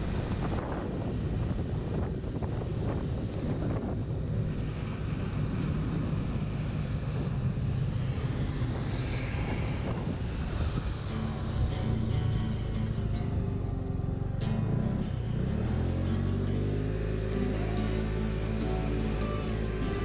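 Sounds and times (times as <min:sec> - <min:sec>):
scooter engine drone: 0:00.0 - 0:20.0
wind buffeting microphone: 0:00.0 - 0:20.0
music: 0:11.1 - 0:20.0.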